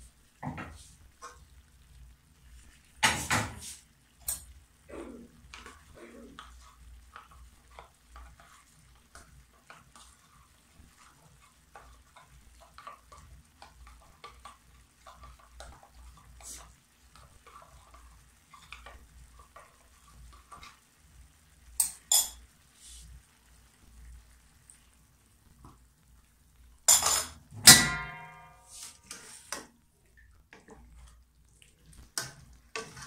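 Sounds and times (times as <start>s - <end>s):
food sizzling in a wok: 0.0s - 29.8s
kitchenware taps and clinks: 26.9s - 28.6s.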